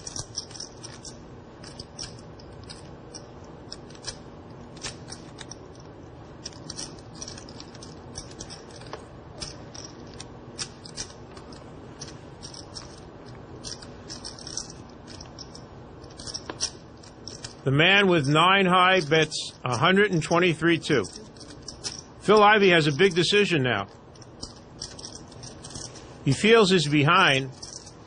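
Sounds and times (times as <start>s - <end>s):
poker chips clicking: 0.0s - 4.2s, 4.8s - 5.6s, 6.4s - 17.6s, 20.9s - 22.0s, 24.2s - 26.0s, 27.5s - 27.9s
low room hum: 0.0s - 28.0s.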